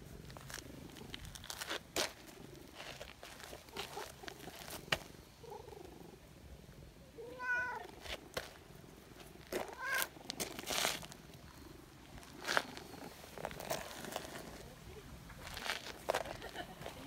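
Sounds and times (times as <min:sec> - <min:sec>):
cat meowing: 0:07.2 - 0:07.9, 0:09.7 - 0:10.1.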